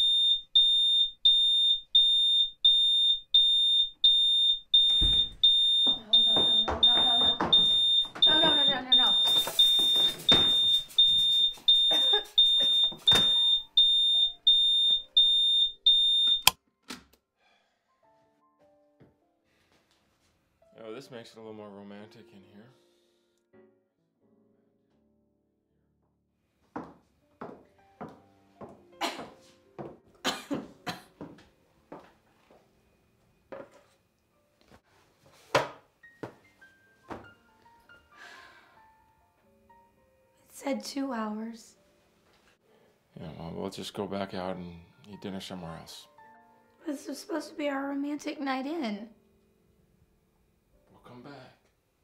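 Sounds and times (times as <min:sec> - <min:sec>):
smoke detector beeping: 0:00.0 - 0:16.6.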